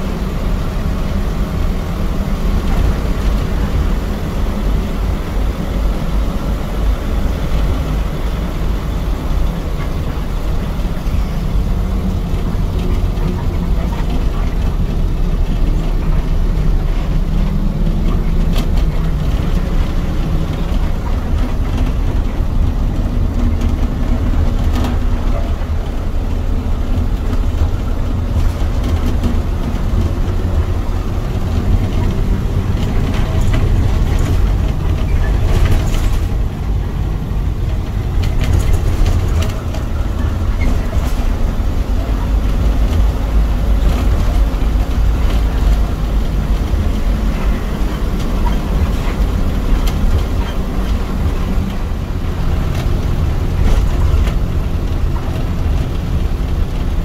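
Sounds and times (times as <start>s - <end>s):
bus engine and road rumble: 0.0s - 57.0s.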